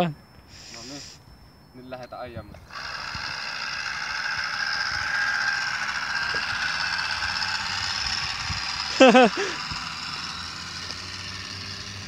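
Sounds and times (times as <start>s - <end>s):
small motor whining: 2.6s - 12.0s.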